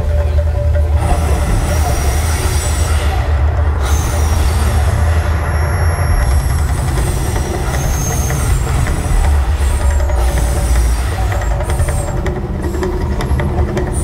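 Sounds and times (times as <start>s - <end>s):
deep continuous rumble: 0.0s - 14.0s.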